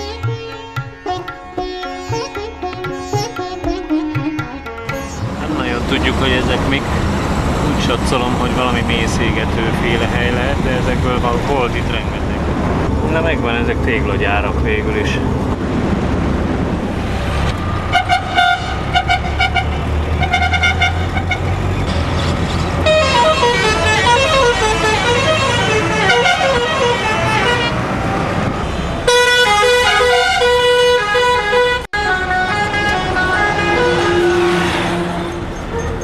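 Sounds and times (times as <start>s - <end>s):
car horns honking: 17.8s - 21.9s, 22.8s - 27.9s, 29.0s - 36.0s.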